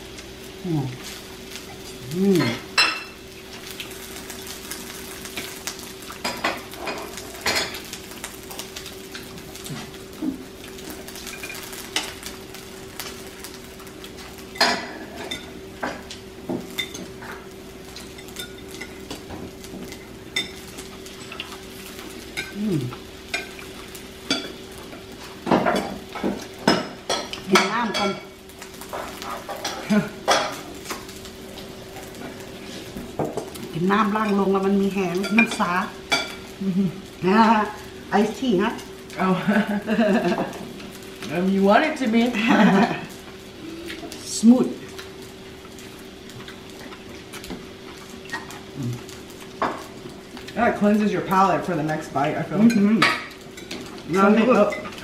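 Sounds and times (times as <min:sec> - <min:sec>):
food sizzling on a grill: 0:00.0 - 0:55.0
utensils clinking against dishes: 0:52.6 - 0:54.0.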